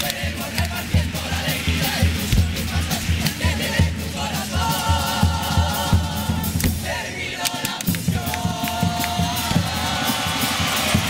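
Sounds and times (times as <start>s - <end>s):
low drum beat: 0.0s - 7.2s
chorus singing in harmony: 0.0s - 11.0s.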